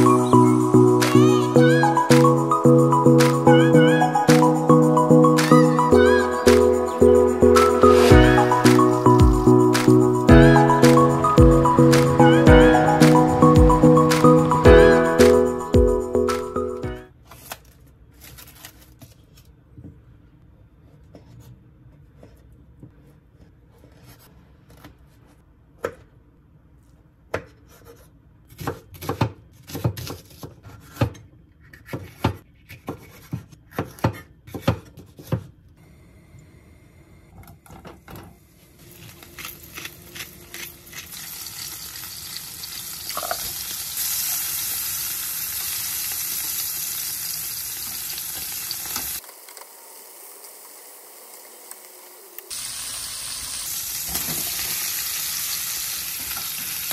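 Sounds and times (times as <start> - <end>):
food sizzling in a pan: 39.6 - 56.9.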